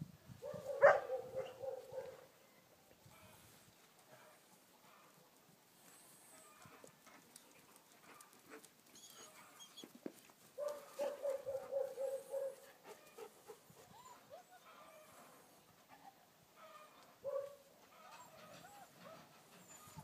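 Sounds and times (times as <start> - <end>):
puppy yelping and whining: 8.9 - 9.9, 13.9 - 15.0, 18.0 - 20.0
puppy yips: 17.2 - 20.0.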